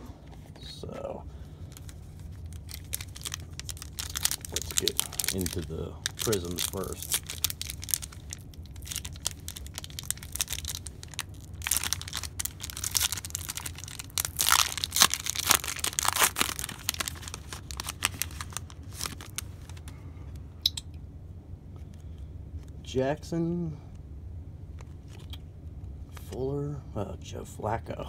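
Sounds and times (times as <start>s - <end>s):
foil wrapper tearing and crinkling: 1.7s - 19.9s.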